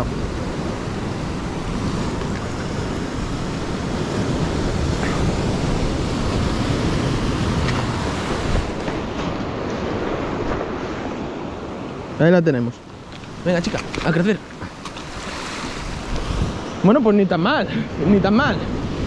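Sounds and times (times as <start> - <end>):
wind buffeting microphone: 0.0 - 12.1, 12.9 - 19.0
surf breaking against rocks: 13.0 - 16.9.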